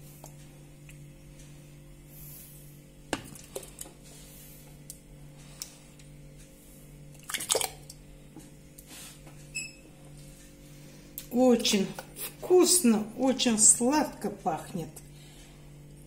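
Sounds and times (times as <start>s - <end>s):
steady low hum: 0.0s - 16.0s
wet squelches and plops of jam: 3.1s - 4.0s, 7.1s - 8.0s.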